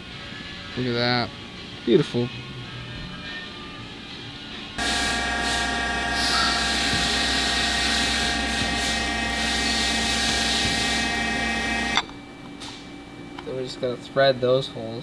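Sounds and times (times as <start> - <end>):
milling machine spindle whine: 4.8 - 12.0.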